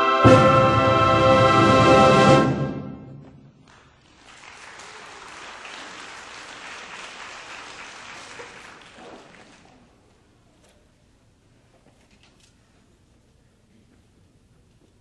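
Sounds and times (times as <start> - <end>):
concert band holding chord: 0.0 - 3.4
audience applause: 3.6 - 9.9.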